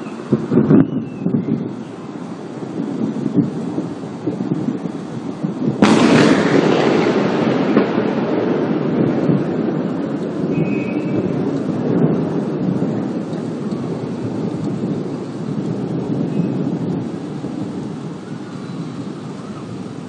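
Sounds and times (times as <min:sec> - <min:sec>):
thunder rumbling: 0:00.0 - 0:20.0.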